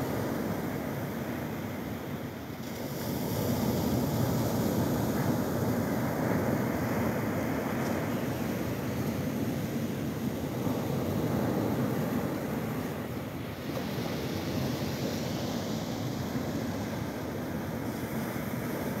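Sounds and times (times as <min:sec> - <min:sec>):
ocean waves breaking on beach: 0:00.0 - 0:19.0.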